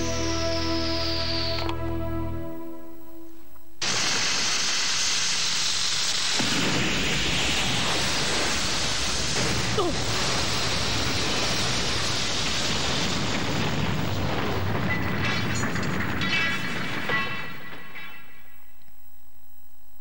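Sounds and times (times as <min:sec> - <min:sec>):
falling whistle: 0:00.0 - 0:02.1
explosion rush with deep rumble: 0:06.4 - 0:16.9.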